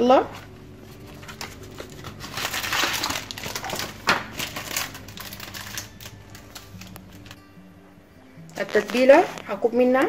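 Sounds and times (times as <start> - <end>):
plastic gloves rustling: 0.0 - 7.5, 8.5 - 9.9
paper packet crinkling: 0.4 - 7.4, 8.5 - 9.5.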